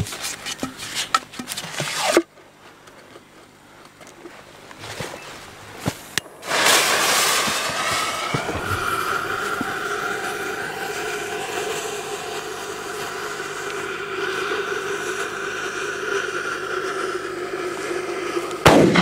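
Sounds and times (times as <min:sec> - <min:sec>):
firework hissing jet of sparks: 0:05.9 - 0:19.0.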